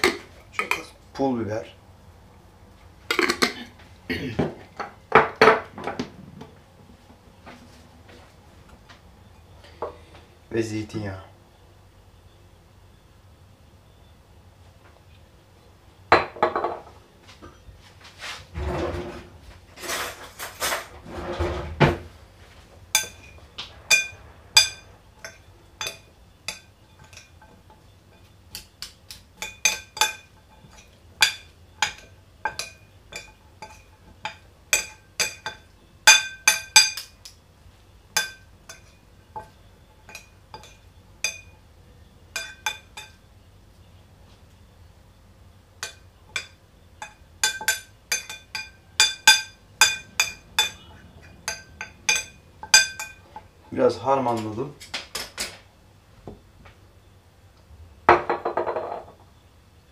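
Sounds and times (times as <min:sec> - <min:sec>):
spoons clinking against ceramic bowl: 0:22.9 - 0:37.2, 0:38.1 - 0:41.6, 0:42.3 - 0:43.2, 0:45.8 - 0:53.5
glass bottle knock on stone: 0:58.1 - 0:59.2.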